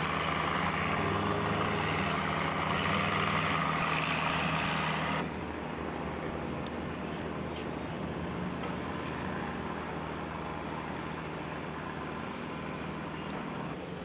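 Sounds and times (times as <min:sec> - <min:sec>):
distant traffic rumble: 0:00.0 - 0:14.0.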